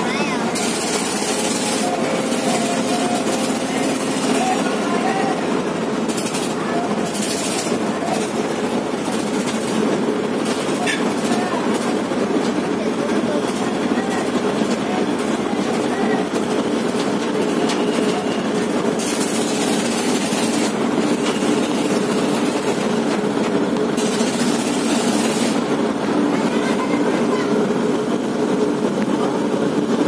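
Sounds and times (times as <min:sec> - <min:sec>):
boat engine drone: 0:00.0 - 0:09.3.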